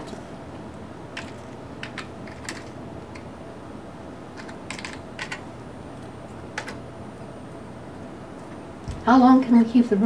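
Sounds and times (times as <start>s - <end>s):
steady low hum: 0.0s - 10.0s
keyboard typing: 1.2s - 3.3s, 4.3s - 5.5s, 6.5s - 6.8s.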